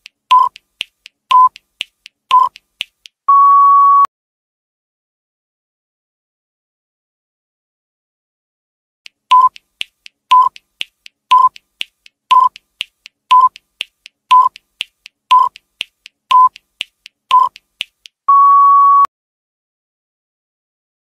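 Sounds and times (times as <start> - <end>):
clock-like ticks: 0.0 - 3.2, 9.1 - 18.2
electronic countdown beeps: 0.3 - 0.6, 1.3 - 1.6, 2.3 - 2.6, 9.3 - 9.7, 10.3 - 10.6, 11.3 - 11.6, 12.3 - 12.6, 13.3 - 13.6, 14.3 - 14.6, 15.3 - 15.6, 16.3 - 16.6, 17.3 - 17.6, 18.3 - 19.1.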